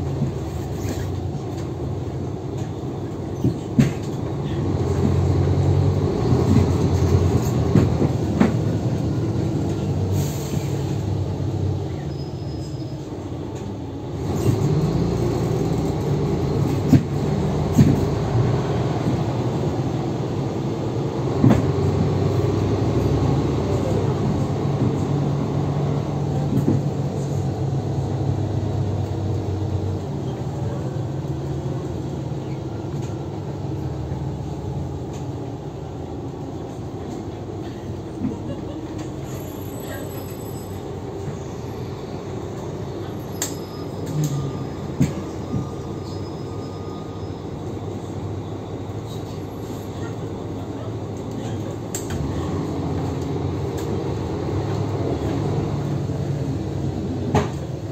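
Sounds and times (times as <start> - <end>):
bus engine and drivetrain drone: 0.0 - 57.9.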